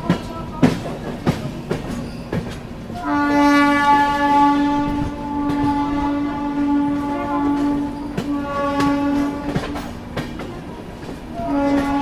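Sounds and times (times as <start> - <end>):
train wheels clattering over rail joints: 0.0 - 3.0, 4.8 - 12.0
train horn blasts: 2.9 - 10.0, 11.3 - 12.0.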